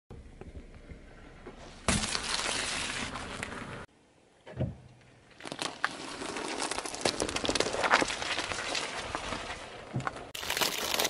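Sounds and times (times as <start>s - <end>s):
tyre crushing cake crackling: 5.4s - 11.0s.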